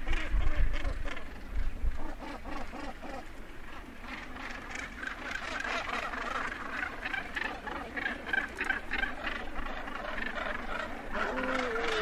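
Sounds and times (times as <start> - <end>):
gannets calling: 4.0 - 12.0.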